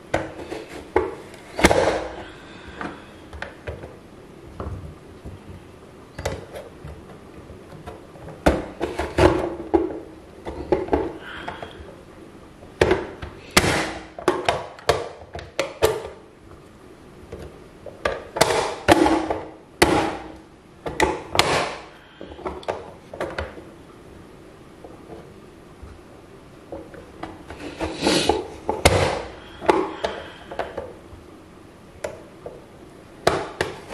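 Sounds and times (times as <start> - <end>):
plastic lid clacking and thudding: 6.2 - 11.7, 12.8 - 16.2, 17.3 - 23.6, 28.3 - 31.0, 33.2 - 33.9.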